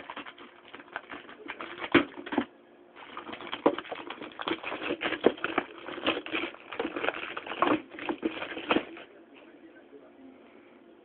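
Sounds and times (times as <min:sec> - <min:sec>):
plastic wrapper crinkling: 0:00.0 - 0:09.1.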